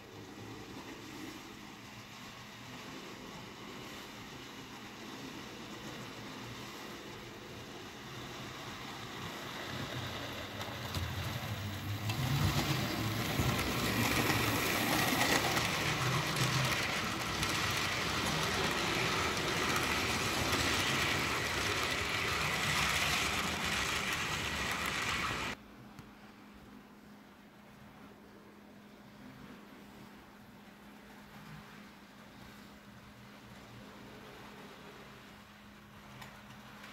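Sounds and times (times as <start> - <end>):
model train rattling on track: 0.0 - 25.6.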